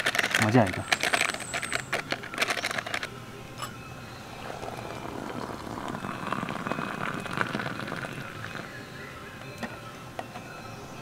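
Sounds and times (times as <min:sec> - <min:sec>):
metal cookware clinking: 0:03.6 - 0:03.9
tea pouring into a mug: 0:04.4 - 0:08.8.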